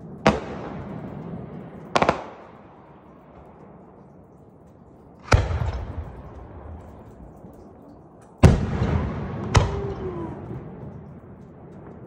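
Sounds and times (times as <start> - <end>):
firework shells bursting: 5.2 - 12.0.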